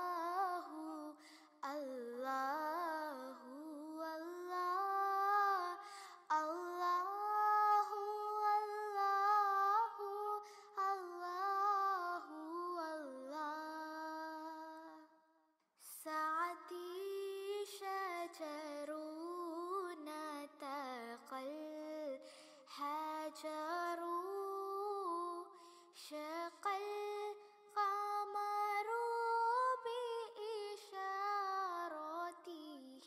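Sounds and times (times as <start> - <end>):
woman singing wordless melody: 0.0 - 15.2, 15.8 - 33.0.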